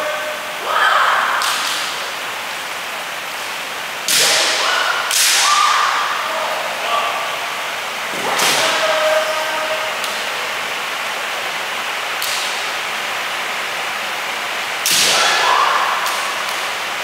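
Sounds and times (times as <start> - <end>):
bamboo swords cracking: 4.1 - 5.7, 14.8 - 15.4
fighters shouting: 4.1 - 7.4, 15.0 - 16.4.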